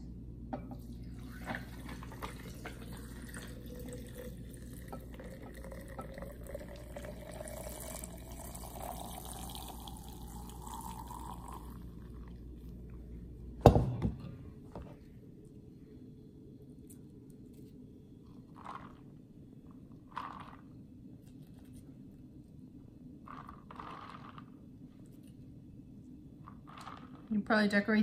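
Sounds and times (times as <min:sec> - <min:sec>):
juice pouring into pitcher of ice: 0:00.9 - 0:12.8, 0:18.4 - 0:19.2, 0:20.0 - 0:20.8, 0:23.3 - 0:24.5, 0:26.5 - 0:27.3.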